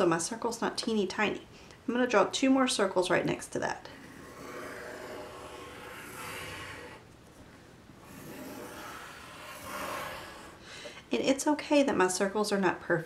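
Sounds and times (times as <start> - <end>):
pencil scratching on paper: 4.0 - 7.0, 8.0 - 10.6.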